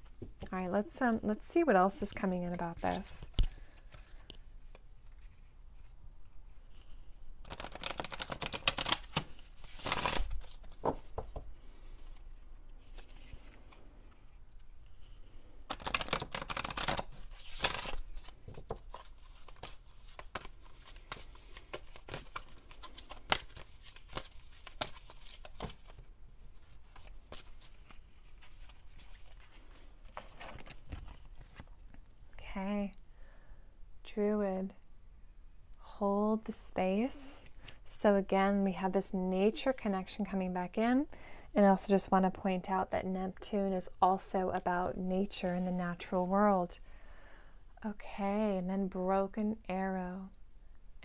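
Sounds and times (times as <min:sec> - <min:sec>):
cards being shuffled: 0:06.6 - 0:11.5, 0:15.6 - 0:26.0, 0:26.6 - 0:32.0.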